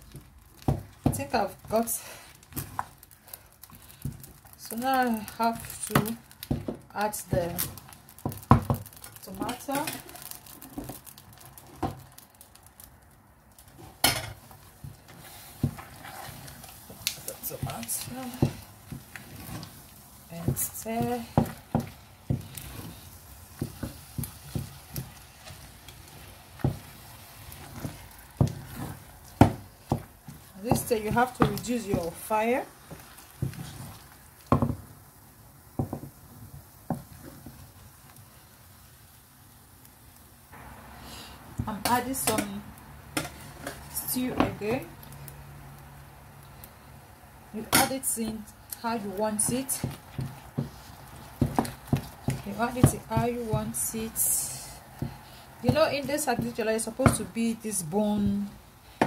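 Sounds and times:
spatula stirring thick paste: 0:00.0 - 0:12.6, 0:13.6 - 0:34.8, 0:47.6 - 0:59.0.

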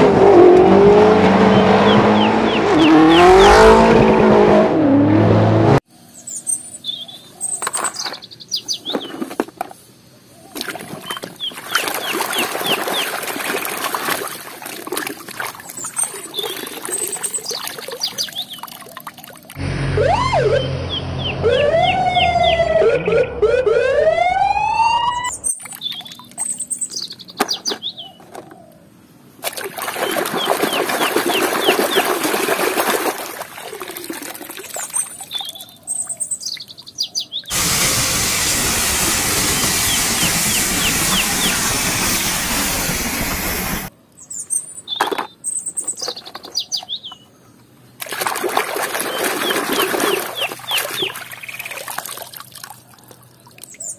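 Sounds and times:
birds chirping: 0:01.4 - 0:03.7, 0:06.0 - 0:09.4, 0:10.1 - 0:13.2, 0:15.8 - 0:19.6, 0:20.4 - 0:29.2, 0:29.9 - 0:32.2, 0:34.9 - 0:37.5, 0:39.5 - 0:41.9, 0:44.2 - 0:48.0, 0:49.0 - 0:51.9
water splashing in washtub: 0:10.6 - 0:19.6, 0:29.4 - 0:35.3, 0:48.0 - 0:52.9
police siren wailing: 0:19.6 - 0:25.4.

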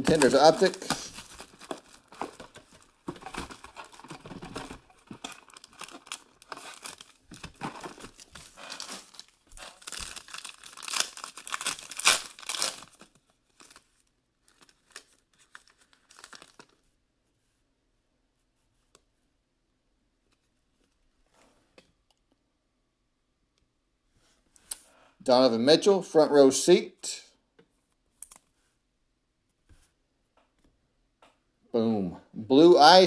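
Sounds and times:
packaging being torn open: 0:00.0 - 0:13.8, 0:14.5 - 0:16.8
foil pack crinkling: 0:00.0 - 0:16.8.

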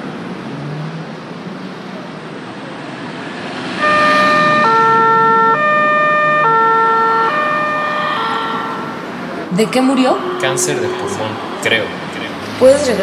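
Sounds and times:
steady background noise: 0:00.0 - 0:13.0
two-tone emergency siren: 0:03.8 - 0:13.0.

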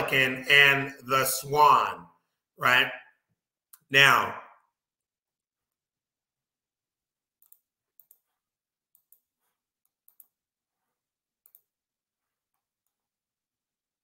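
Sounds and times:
faint computer mouse clicks: 0:08.9 - 0:10.4.

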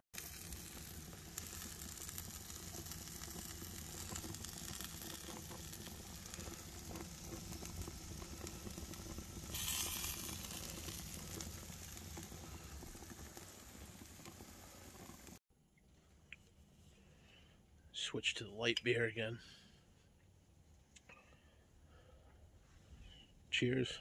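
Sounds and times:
burger patties sizzling on a grill: 0:00.2 - 0:15.4.

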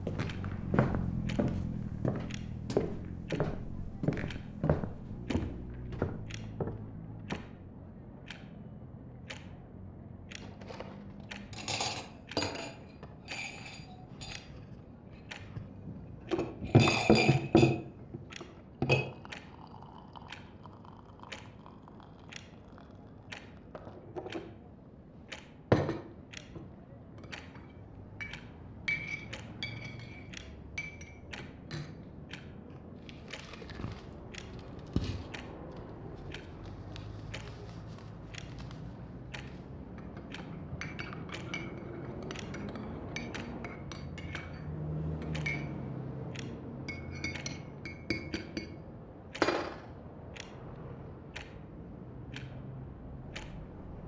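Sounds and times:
knocks and taps: 0:00.1 - 0:07.6.

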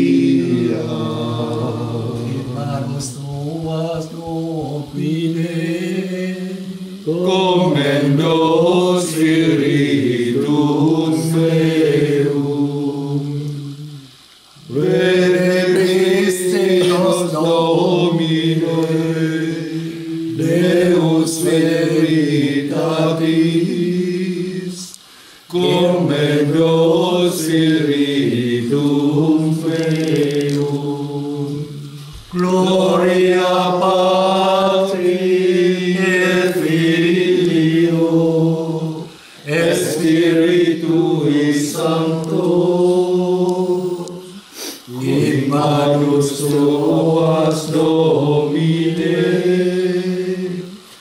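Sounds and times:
men singing a prayer chant: 0:00.0 - 0:51.0.

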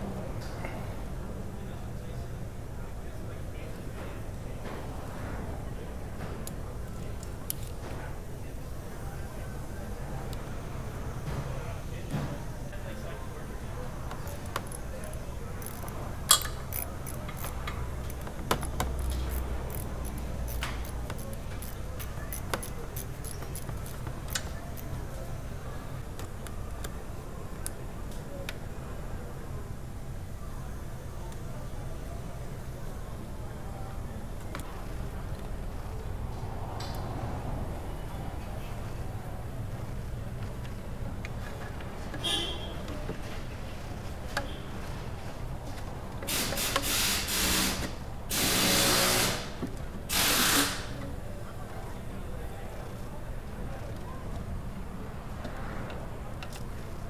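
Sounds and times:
metallic clicks of hand tools: 0:14.2 - 0:24.9.

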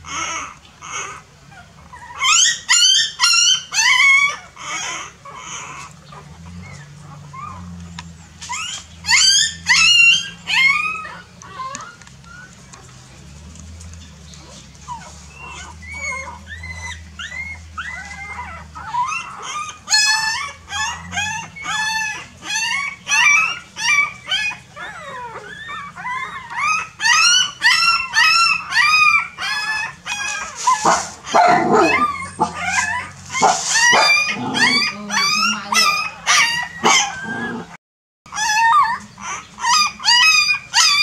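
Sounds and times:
puppies whimpering and yelping: 0:00.0 - 0:41.0.

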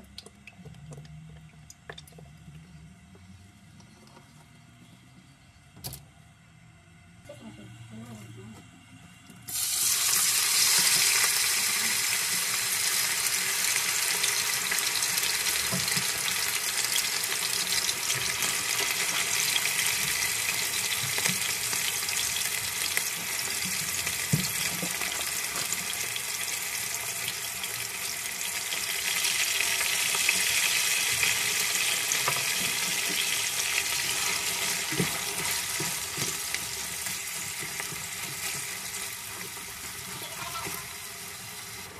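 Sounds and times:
chicken sizzling in hot oil: 0:09.5 - 0:41.9.

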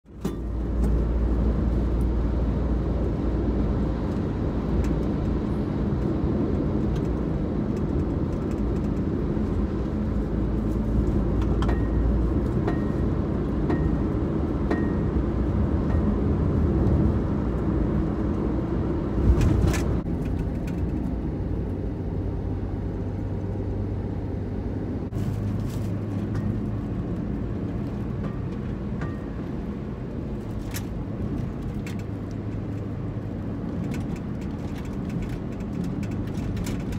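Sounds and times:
car road and engine noise: 0:00.0 - 0:36.9.

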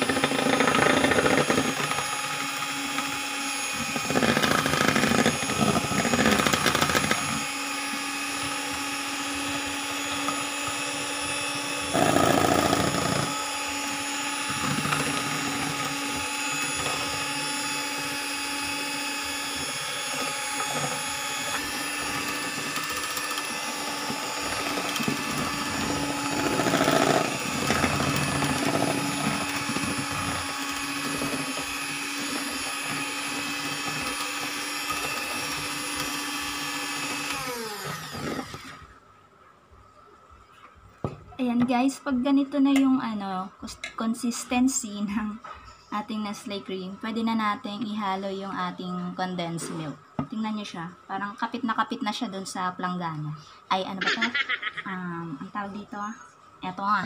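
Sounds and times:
electric hand mixer whipping cream: 0:00.0 - 0:39.0, 0:53.9 - 0:55.9.

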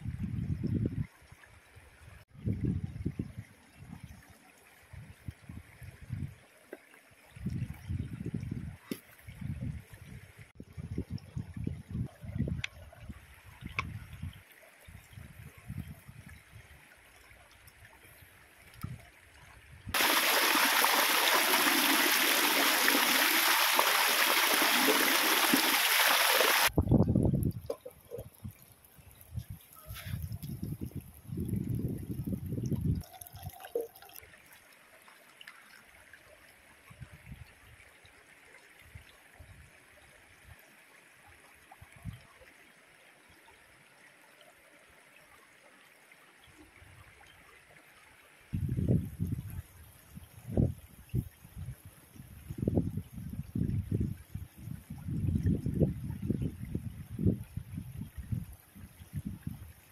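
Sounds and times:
stream running over rock: 0:02.5 - 0:59.9
water pouring and splashing: 0:19.9 - 0:36.2
kettle filling with water: 0:20.0 - 0:26.7.

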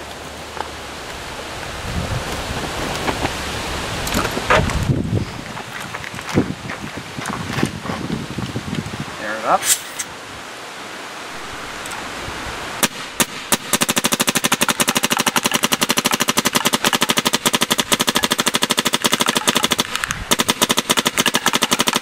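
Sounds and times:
paintball marker firing: 0:12.8 - 0:22.0.

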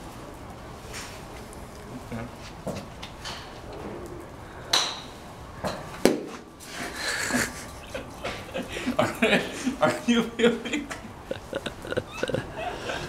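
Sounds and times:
golf club striking ball: 0:04.7 - 0:06.4.

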